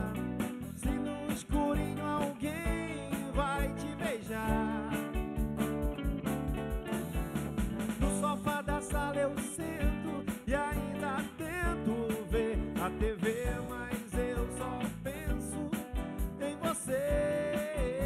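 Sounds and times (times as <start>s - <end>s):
live rock band playing: 0.0s - 18.0s
kick drum: 4.5s - 8.2s.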